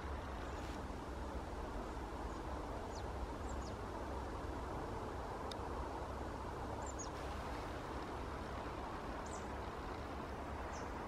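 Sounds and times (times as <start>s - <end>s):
low rumble and hiss: 0.0s - 11.0s
small bird calling: 2.3s - 3.8s, 6.8s - 7.3s, 9.2s - 11.0s.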